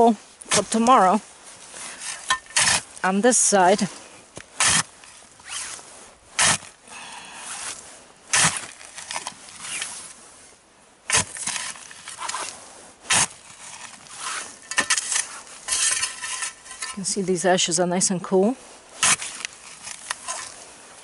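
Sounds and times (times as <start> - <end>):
dirt scraping: 0.0 - 21.0
spade stabbing into soil: 2.0 - 3.9, 4.5 - 5.0, 6.4 - 6.8, 7.6 - 9.9, 11.1 - 17.2, 19.0 - 20.6.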